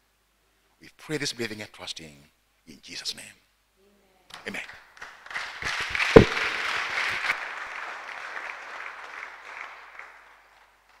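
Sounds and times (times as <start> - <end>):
congregation applauding: 4.6 - 11.0
loud low thump: 6.2 - 6.7.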